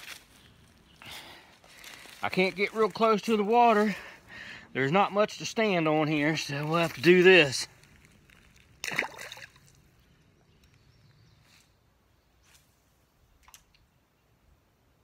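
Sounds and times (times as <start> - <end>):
fish splashing into water: 8.8 - 9.8.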